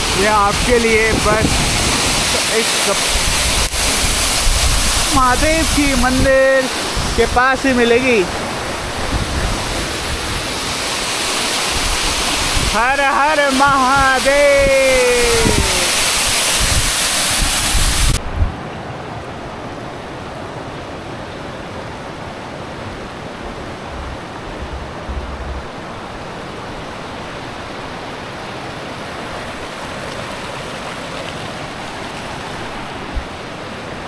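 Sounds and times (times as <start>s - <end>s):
river rushing: 0.0s - 34.0s.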